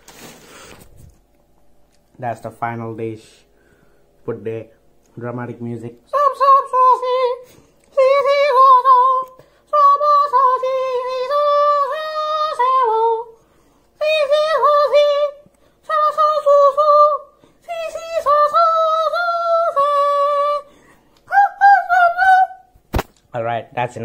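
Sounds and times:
person singing wordless tune: 5.9 - 13.4, 14.0 - 22.7.

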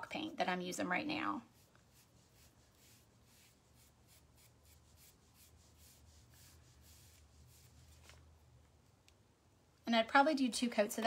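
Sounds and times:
paintbrush swishing on wood: 1.4 - 8.3.

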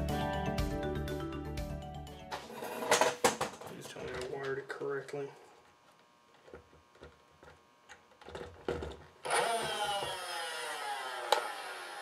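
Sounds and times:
blaster flywheel motors whining: 9.2 - 12.0.

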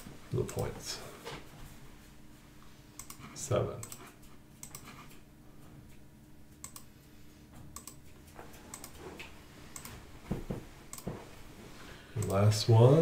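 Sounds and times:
mouse and keyboard clicks: 3.0 - 5.2, 7.8 - 9.9.

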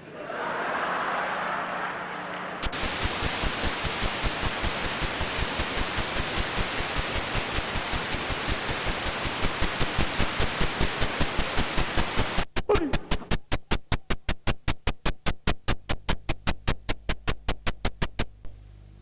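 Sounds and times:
videotape static hiss: 0.6 - 19.0.

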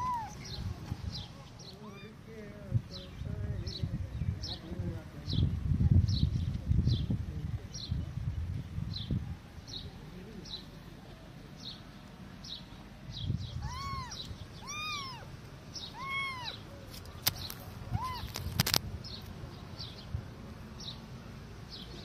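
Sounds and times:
kitten mewing: 0.0 - 0.4, 13.6 - 15.3, 15.9 - 16.6, 17.9 - 18.7
sharp clicks: 17.0 - 18.8.

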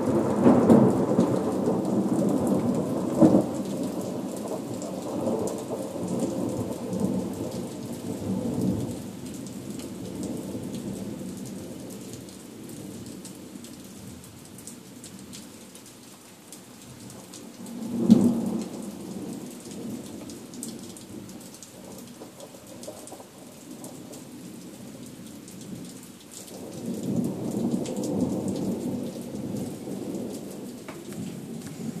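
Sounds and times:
thunder rumbling: 0.0 - 7.6, 26.6 - 32.0
rain pattering: 0.0 - 32.0.

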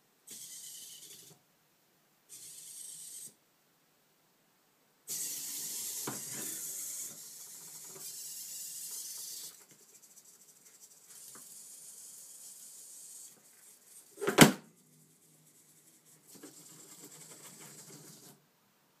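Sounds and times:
robot servo motors whirring: 0.3 - 1.4, 2.3 - 3.4, 5.1 - 14.1.

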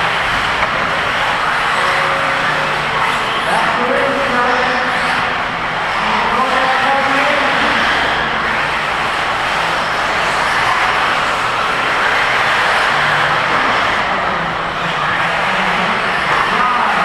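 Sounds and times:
radio-controlled buggies racing: 0.0 - 17.0.

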